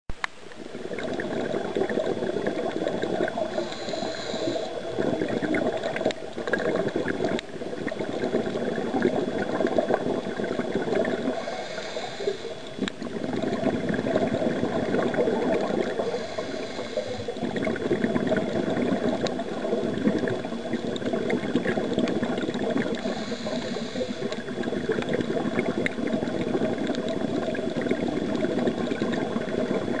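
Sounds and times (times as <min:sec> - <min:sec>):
exhaled bubbles gurgling: 0:00.2 - 0:30.0
regulator hissing inhale: 0:03.3 - 0:05.0, 0:11.2 - 0:12.9, 0:15.9 - 0:17.4, 0:22.9 - 0:24.5.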